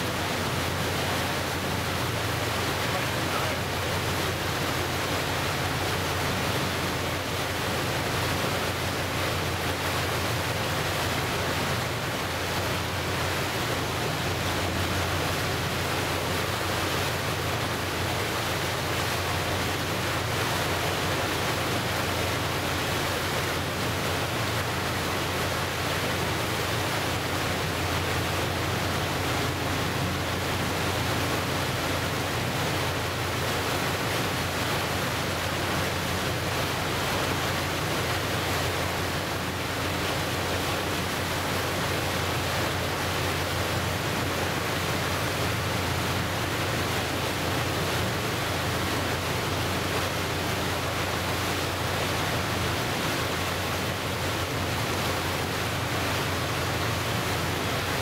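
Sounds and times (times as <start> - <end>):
water washing against shore: 0.0 - 58.0.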